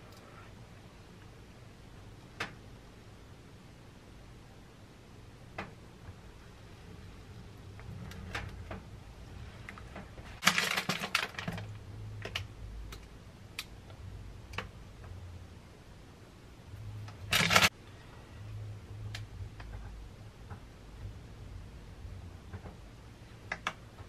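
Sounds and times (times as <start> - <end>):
plastic packet crackling: 10.4 - 11.8, 17.2 - 17.7.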